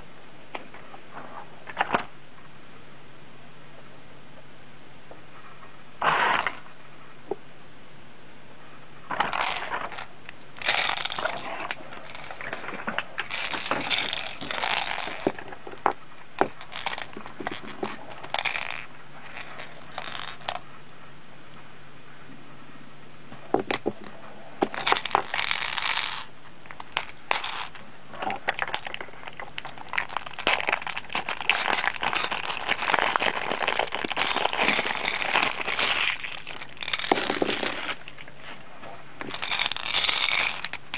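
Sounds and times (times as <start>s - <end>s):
faint steady hum: 0.0s - 40.9s
plastic packaging crinkling: 9.1s - 15.6s, 16.4s - 20.6s, 24.6s - 38.6s, 39.2s - 40.9s.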